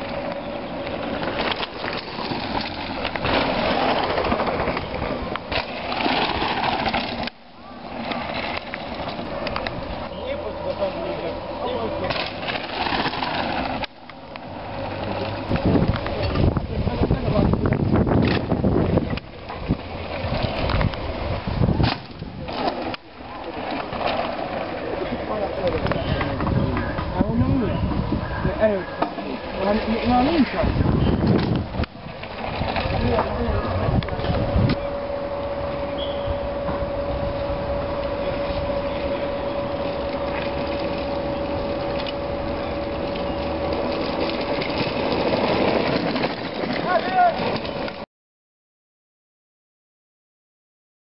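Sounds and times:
chairlift cable hum and whine: 0.0s - 48.0s
mountain bikes rattling over dirt: 0.0s - 48.0s
wind buffeting microphone: 14.8s - 22.5s, 25.6s - 46.2s.

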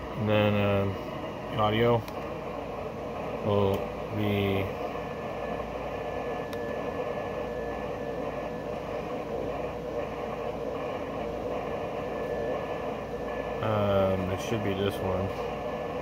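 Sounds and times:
background hiss and hum: 0.0s - 16.0s
faint high steady tone: 3.5s - 15.0s.

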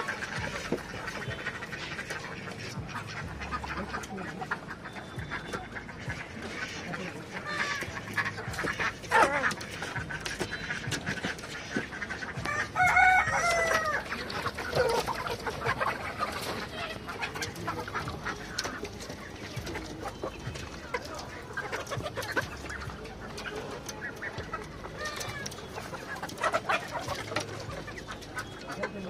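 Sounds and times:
chickens clucking: 0.0s - 29.0s
rooster crowing: 12.4s - 14.0s.

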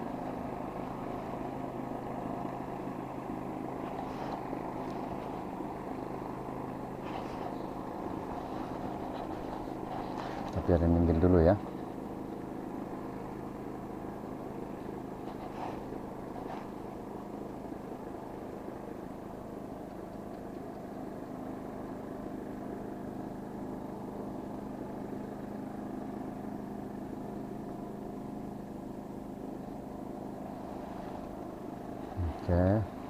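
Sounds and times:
boat engine running: 0.0s - 33.0s
faint clicks: 19.8s - 21.4s.

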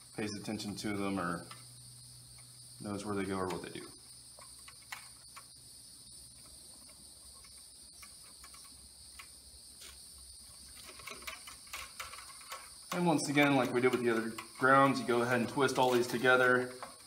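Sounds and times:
high-pitched hiss: 0.0s - 17.0s
hand tool clicks and scrapes: 10.7s - 17.0s.

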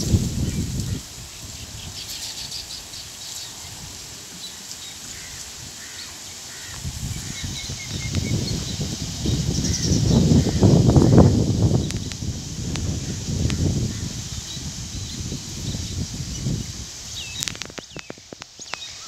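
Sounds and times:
low rumbling on microphone: 0.0s - 2.0s, 6.8s - 17.4s
small birds chirping: 0.0s - 19.0s.

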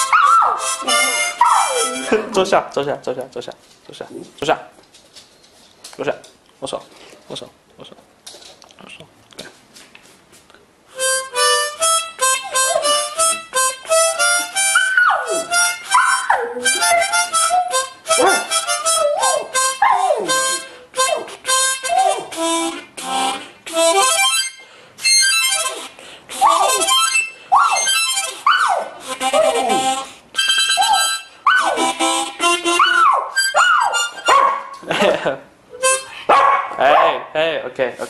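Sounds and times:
dog howling and yelping: 0.0s - 0.7s, 1.3s - 2.1s, 12.4s - 13.0s, 14.7s - 20.4s, 26.4s - 30.0s, 30.8s - 31.9s, 32.8s - 34.8s
harmonica playing: 0.0s - 2.6s, 10.9s - 34.7s, 35.7s - 36.3s.

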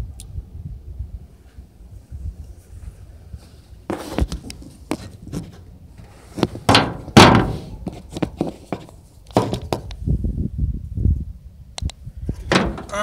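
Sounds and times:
camera handling knocks and thumps: 6.4s - 10.0s.

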